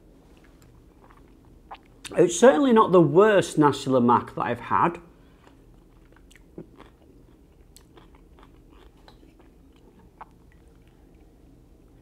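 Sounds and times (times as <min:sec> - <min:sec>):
person chewing food: 0:00.3 - 0:02.2, 0:05.3 - 0:12.0.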